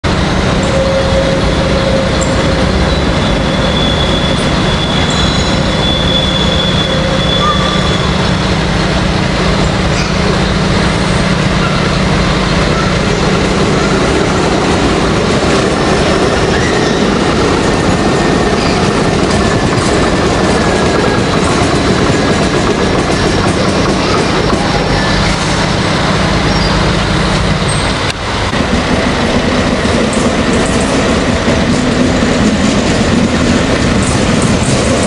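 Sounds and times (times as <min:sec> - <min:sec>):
train approaching rush: 0:00.0 - 0:35.0
thin high squeal: 0:02.1 - 0:08.2.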